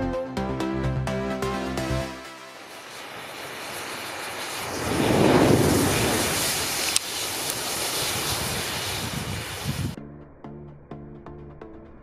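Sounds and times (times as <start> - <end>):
matches flaring whoosh: 1.8 - 10.0
sharp crack: 2.1 - 9.9.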